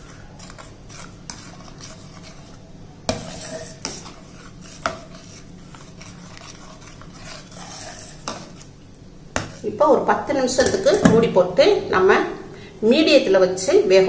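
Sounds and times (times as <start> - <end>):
ladle scraping pot: 0.0 - 8.8.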